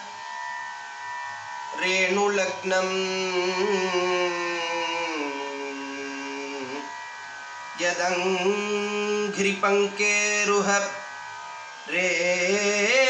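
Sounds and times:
steady drone: 0:00.0 - 0:13.0
man singing slowly: 0:01.7 - 0:07.0, 0:07.7 - 0:11.2, 0:11.8 - 0:13.0.

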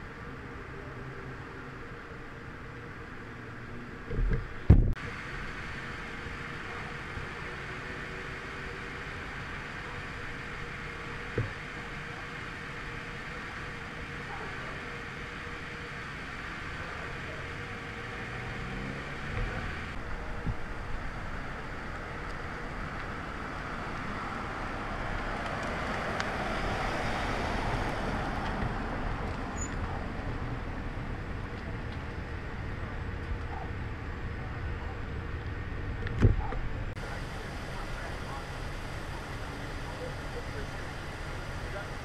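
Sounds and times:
motor vehicle passing: 0:16.8 - 0:20.4, 0:21.4 - 0:35.8.

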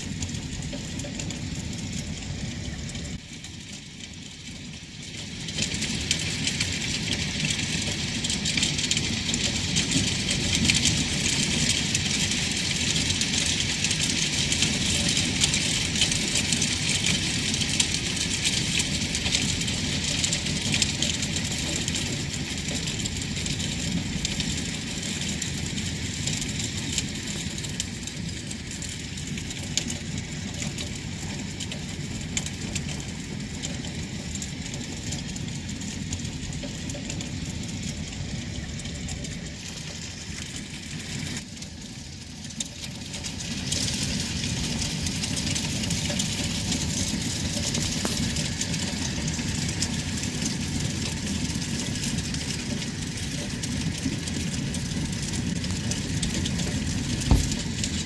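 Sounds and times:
hail and rain on a roof: 0:00.0 - 0:58.0
low steady rumble: 0:00.0 - 0:58.0.

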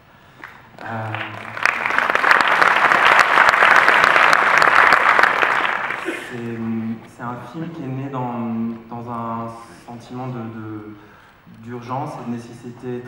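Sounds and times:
audience applauding: 0:00.4 - 0:06.4.

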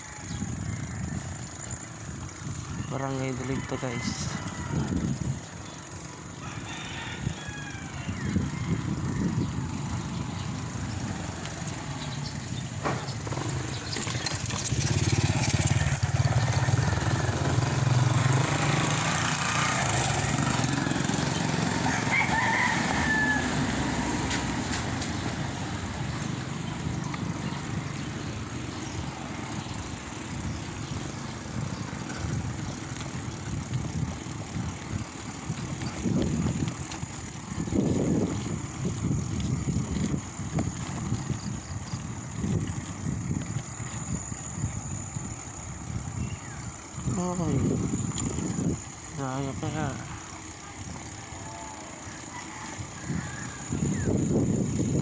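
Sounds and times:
rooster crowing: 0:00.0 - 0:01.6, 0:03.1 - 0:05.4, 0:06.3 - 0:09.6, 0:19.2 - 0:25.2, 0:51.0 - 0:54.2
wind rumble on microphone: 0:00.0 - 0:05.8, 0:06.4 - 0:55.0
bicycle road noise: 0:00.0 - 0:55.0.

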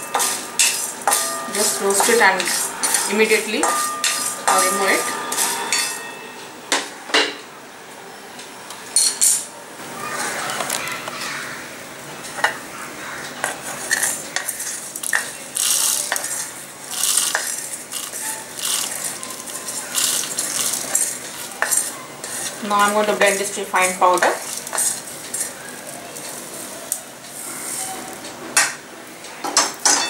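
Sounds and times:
seeds rattling on metal: 0:00.1 - 0:05.8, 0:13.6 - 0:26.7
wooden spatula scraping metal pan: 0:00.2 - 0:06.0, 0:13.4 - 0:25.6.

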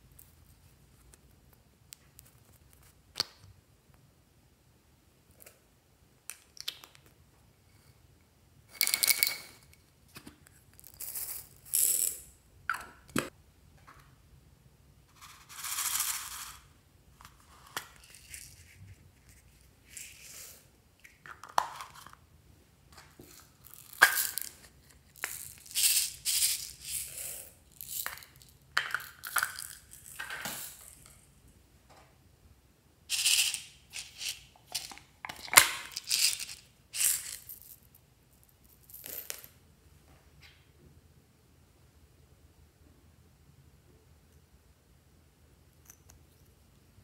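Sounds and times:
beads rattling out of containers: 0:23.5 - 0:31.1, 0:33.1 - 0:37.8.

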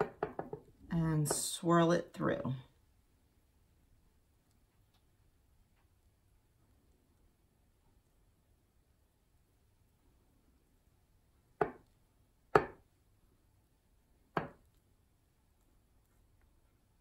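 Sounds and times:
knife knocking on glass dish: 0:00.0 - 0:01.4.

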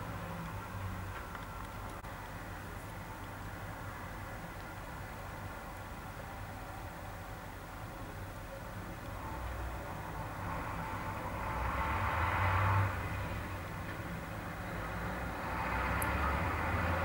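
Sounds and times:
low traffic rumble: 0:00.0 - 0:17.0
cars passing close by: 0:09.2 - 0:17.0.

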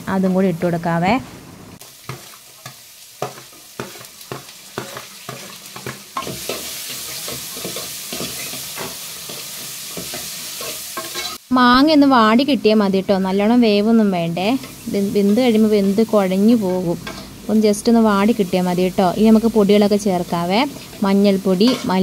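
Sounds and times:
food sizzling in hot oil: 0:01.8 - 0:22.0
metal spoon scraping a pan: 0:02.0 - 0:11.4, 0:17.0 - 0:17.4, 0:20.7 - 0:22.0.

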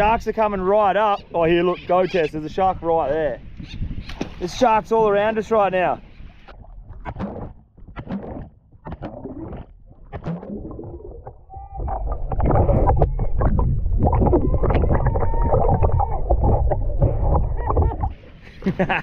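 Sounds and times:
seawater splashing: 0:04.1 - 0:19.0
rumbling churn of water: 0:05.8 - 0:19.0.

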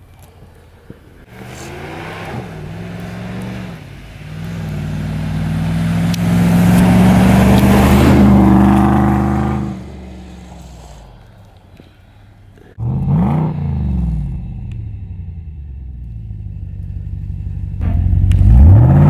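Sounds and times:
truck engine passing: 0:01.2 - 0:19.0
tyres hissing through snow: 0:10.0 - 0:11.6.

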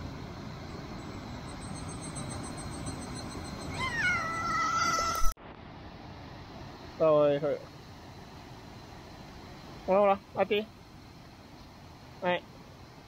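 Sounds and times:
steady background noise: 0:00.0 - 0:13.0
pet animal high-pitched call: 0:03.7 - 0:05.3.

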